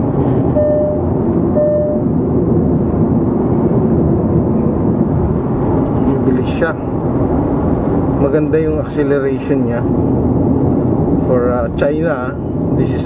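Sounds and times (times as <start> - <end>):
car road and engine noise: 0.0 - 13.0
dashboard warning chime: 0.5 - 2.1.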